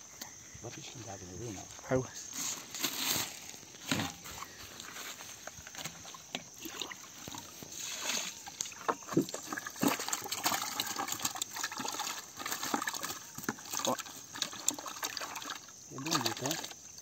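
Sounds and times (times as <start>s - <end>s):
water sloshing in a bucket: 2.3s - 17.0s
fish thrashing: 5.6s - 16.9s.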